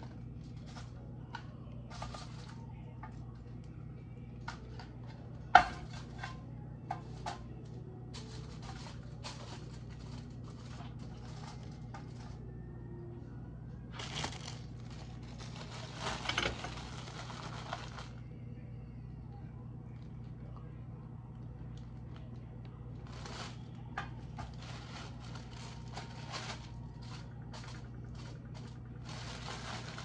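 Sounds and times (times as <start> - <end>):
steady low hum: 0.0 - 30.0
plastic bag crinkling: 8.1 - 12.4, 13.9 - 18.2, 22.9 - 30.0.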